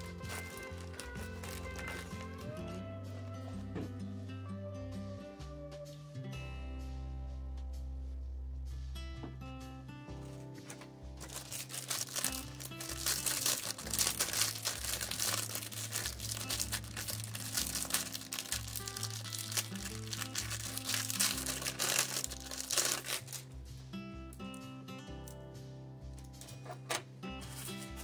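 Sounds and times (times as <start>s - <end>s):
plastic bag crinkling: 0.0s - 2.7s, 10.6s - 23.5s
background music with bass: 0.0s - 28.0s.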